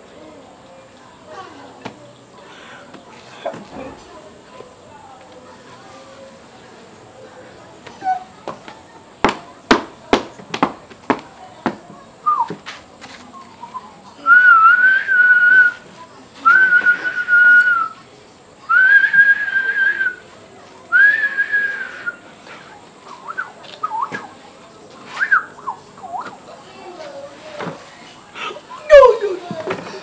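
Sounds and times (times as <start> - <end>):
man whistling: 14.3 - 15.8, 18.7 - 20.2, 21.0 - 22.2.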